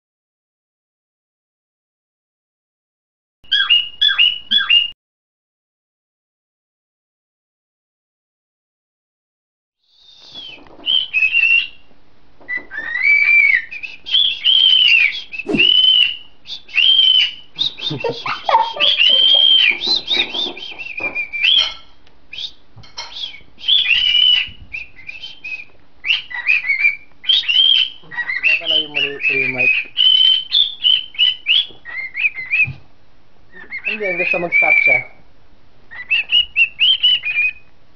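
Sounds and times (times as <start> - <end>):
cockatiel whistling: 3.5 - 4.9, 9.9 - 11.8, 12.5 - 32.8, 33.5 - 35.2, 35.9 - 37.7.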